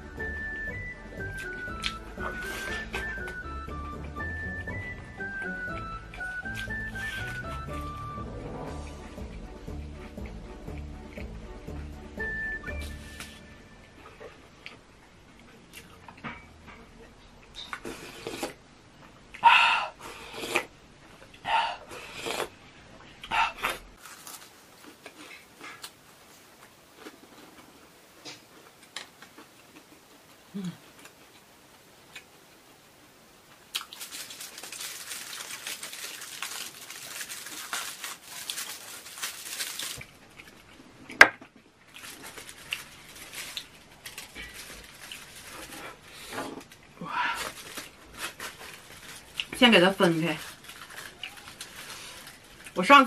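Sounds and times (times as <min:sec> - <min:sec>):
aluminium foil crinkling: 0:06.4 - 0:07.6, 0:24.0 - 0:26.0, 0:33.7 - 0:40.8, 0:41.8 - 0:53.0.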